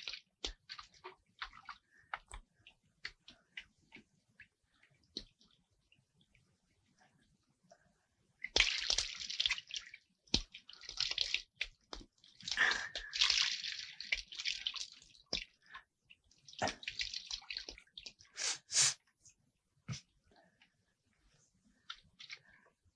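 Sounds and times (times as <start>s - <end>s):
bathwater splashing and trickling: 0.0s - 7.0s, 8.4s - 18.7s, 21.7s - 22.8s.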